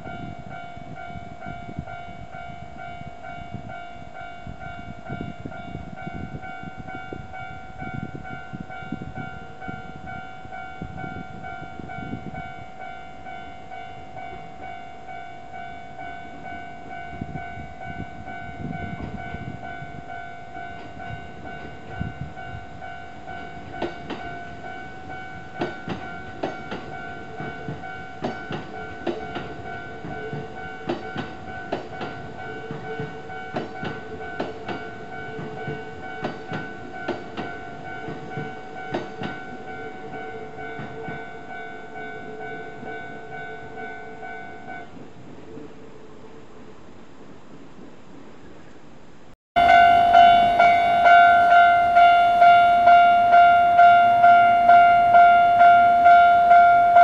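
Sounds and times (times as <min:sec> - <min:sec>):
level-crossing alarm ringing: 0:00.1 - 0:44.9, 0:49.6 - 0:57.0
train wheels clacking over rail joints: 0:25.6 - 0:39.5.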